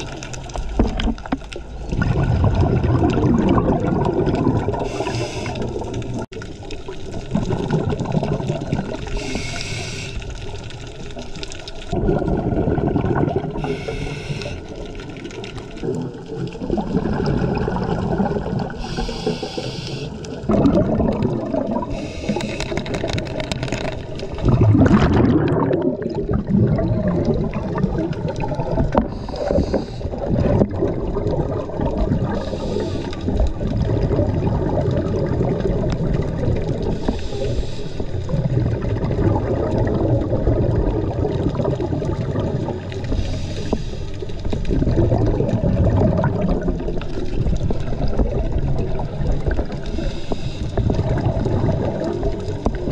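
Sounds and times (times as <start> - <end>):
water noise against housing: 0.0 - 9.5, 20.2 - 52.9
bubbles gurgling: 0.0 - 52.9
regulator breathing hiss: 4.8 - 5.7, 9.1 - 10.3, 13.6 - 14.8, 18.8 - 20.3, 21.9 - 22.8, 29.1 - 30.1, 32.4 - 33.4, 37.0 - 38.1, 43.1 - 44.2, 49.9 - 50.8.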